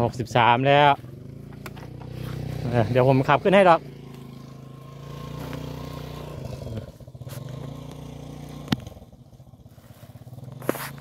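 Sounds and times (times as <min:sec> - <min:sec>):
small motorcycle engine running: 0:00.0 - 0:11.0.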